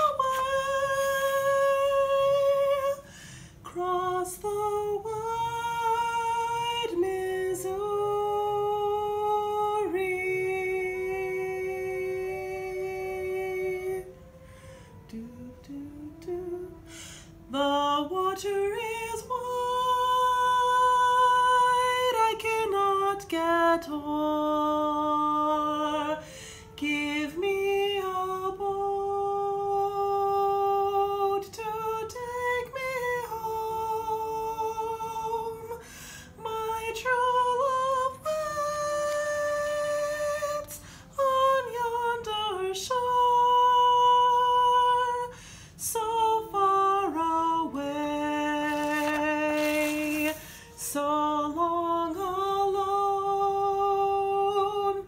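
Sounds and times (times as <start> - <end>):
woman humming a melody: 3.7 - 26.2.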